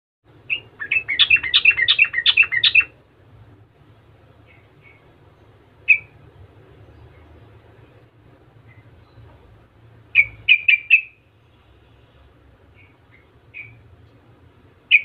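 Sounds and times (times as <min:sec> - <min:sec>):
bird singing bubbly notes: 0:00.5 - 0:02.9
sharp bird call: 0:00.5 - 0:02.9, 0:10.2 - 0:11.2.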